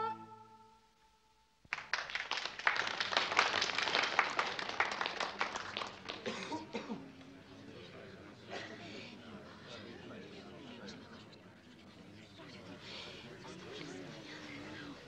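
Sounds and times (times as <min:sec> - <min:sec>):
music: 0:00.0 - 0:00.9
group of people clapping: 0:01.7 - 0:06.9.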